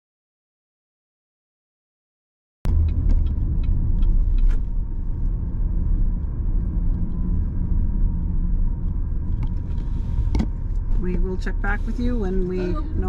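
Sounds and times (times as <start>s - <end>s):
car engine and road noise: 2.7s - 13.0s.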